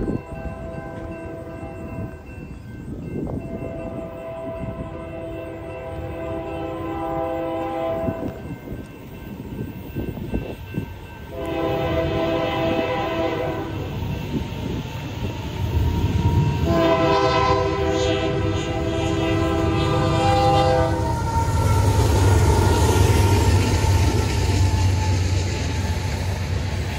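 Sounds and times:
locomotive engine and train rumble: 0.0s - 26.9s
locomotive air horn blasts: 3.4s - 8.4s, 11.3s - 13.9s, 16.2s - 22.7s.

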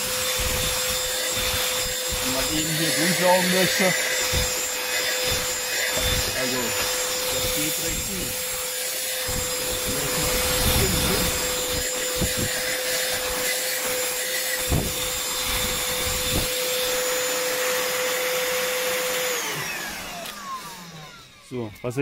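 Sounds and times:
handheld vacuum running: 0.0s - 22.0s
vacuum motor winding down: 0.0s - 22.0s.

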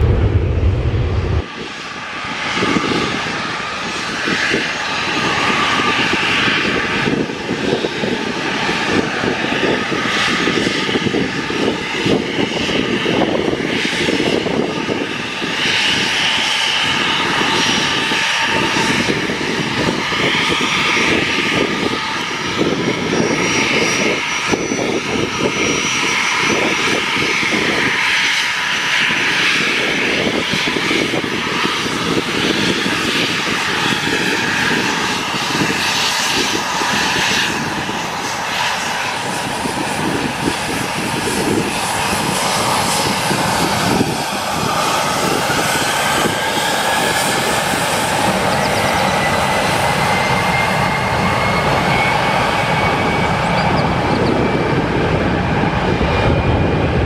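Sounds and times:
jet engines whining: 0.0s - 57.0s.

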